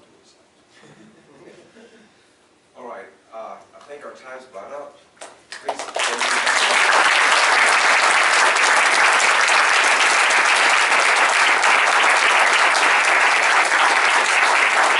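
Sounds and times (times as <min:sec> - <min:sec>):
audience applauding: 0:05.5 - 0:14.9.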